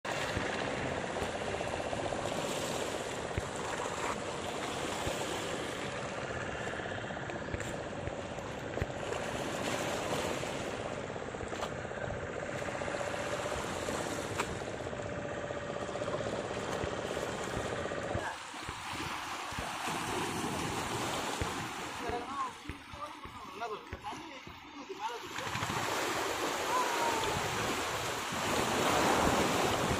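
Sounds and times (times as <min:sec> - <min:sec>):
water churning around wading man: 0:00.0 - 0:29.9
small waves washing against rocks: 0:00.1 - 0:11.8, 0:16.2 - 0:29.9
steady mechanical hum: 0:00.1 - 0:29.9.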